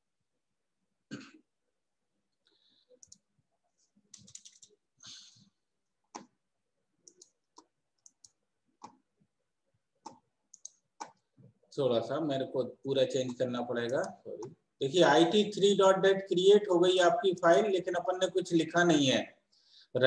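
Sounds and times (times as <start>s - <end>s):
computer mouse clicks: 2.9s - 3.3s, 4.1s - 4.8s, 6.1s - 6.4s, 7.0s - 9.0s, 10.0s - 11.3s, 13.3s - 14.6s.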